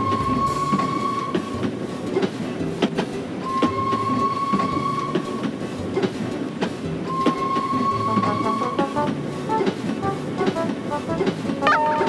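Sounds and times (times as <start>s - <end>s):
toy train wheels clickety-clack: 0.0s - 12.0s
steady high tone: 8.0s - 12.0s.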